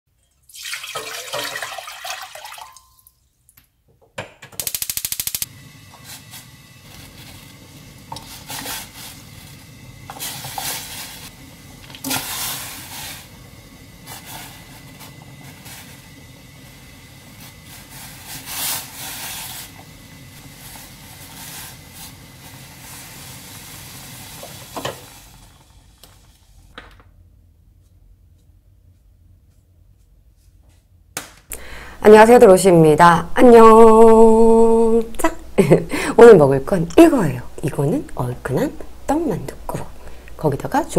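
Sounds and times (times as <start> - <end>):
broth pouring and splashing: 0.3 - 3.3
burner hiss: 4.6 - 26.7.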